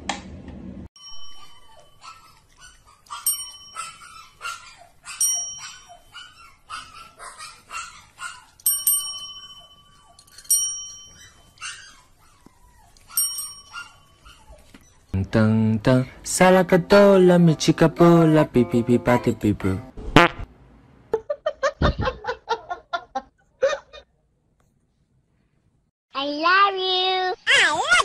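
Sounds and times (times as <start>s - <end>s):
service desk bell dinging: 8.7s - 11.3s.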